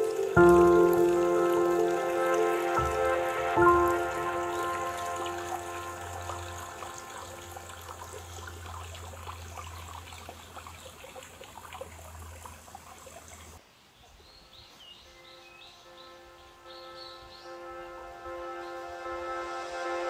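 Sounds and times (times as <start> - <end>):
stream trickling over stones: 0.0 - 14.3
bird chirps: 13.9 - 18.9.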